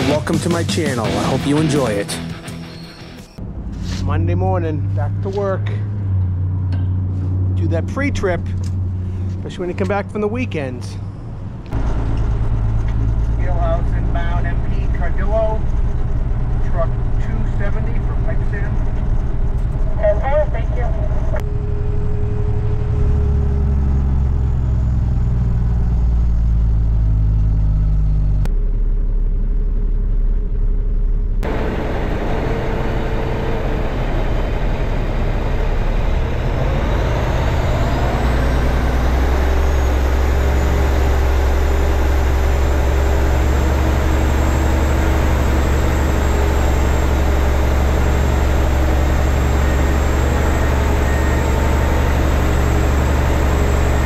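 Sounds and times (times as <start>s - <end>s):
truck diesel engine running: 0.0s - 54.0s
high whine rising in pitch: 28.5s - 54.0s.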